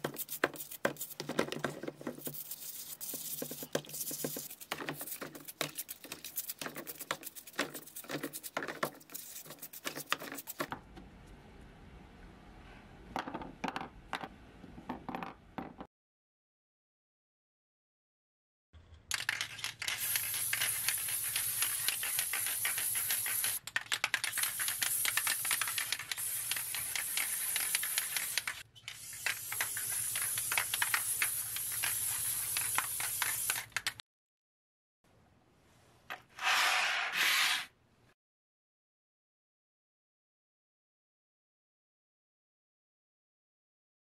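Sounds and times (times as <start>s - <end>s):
aerosol can spraying: 2.2s - 10.7s, 20.0s - 23.6s, 24.2s - 33.7s.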